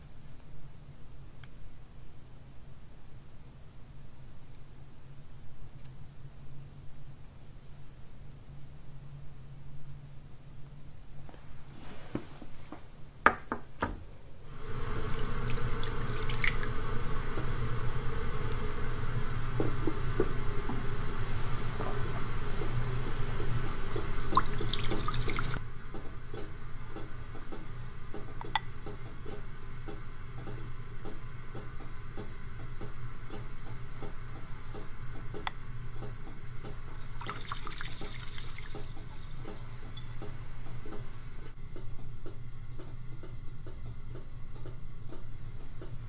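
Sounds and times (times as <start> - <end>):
low steady hum: 0.0 - 46.0
water pouring into a bowl: 14.6 - 17.1, 24.2 - 25.6, 37.0 - 40.1.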